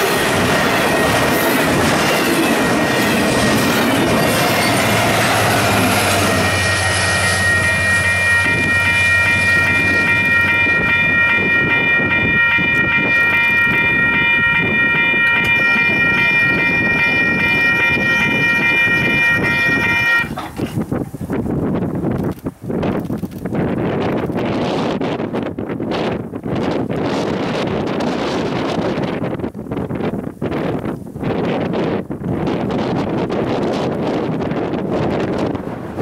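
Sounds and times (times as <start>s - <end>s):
steady chord of high tones: 0.0s - 20.3s
freight train rumbling: 0.0s - 36.0s.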